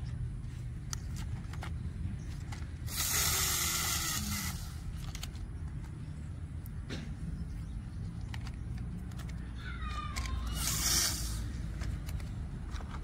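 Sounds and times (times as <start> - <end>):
plastic toy parts clicking: 8.1 - 13.0.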